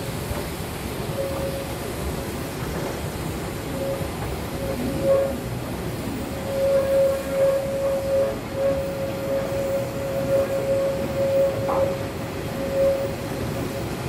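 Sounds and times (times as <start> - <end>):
train carriages rumbling: 0.0 - 14.0
high-pitched wheel squeal: 3.7 - 5.5, 6.3 - 13.8.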